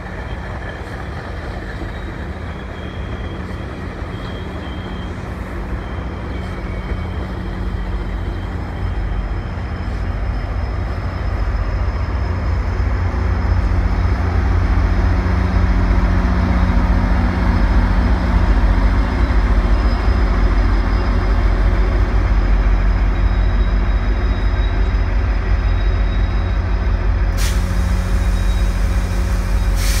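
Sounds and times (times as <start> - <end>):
diesel locomotive rumbling: 0.0 - 30.0
air brakes hissing: 27.3 - 30.0.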